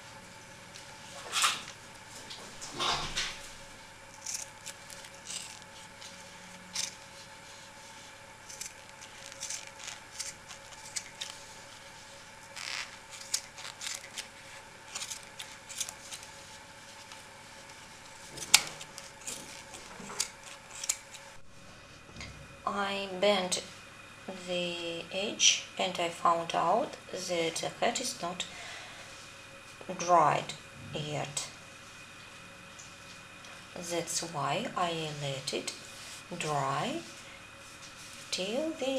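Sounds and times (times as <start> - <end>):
faint steady hum: 0.0 - 38.9.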